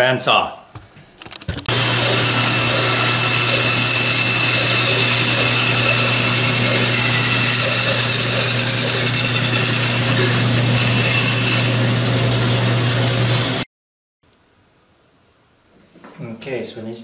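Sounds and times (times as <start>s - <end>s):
bandsaw cutting wood: 1.7s - 13.6s.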